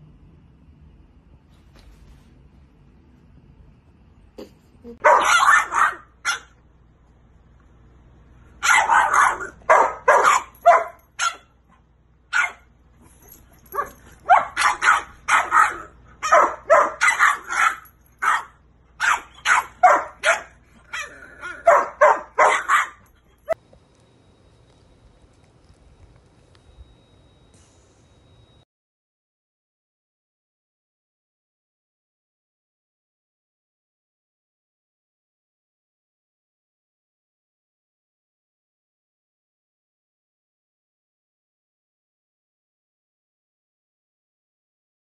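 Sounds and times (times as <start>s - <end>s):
dog play-barking: 5.0s - 6.6s, 8.6s - 23.6s.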